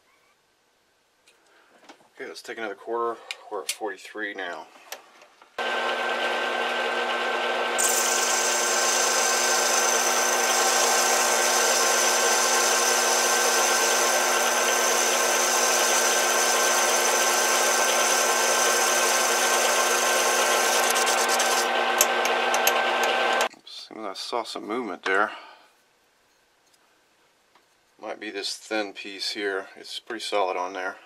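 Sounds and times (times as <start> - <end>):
cutting tool hissing whine: 5.6 - 23.5
metal lathe motor humming: 5.6 - 23.5.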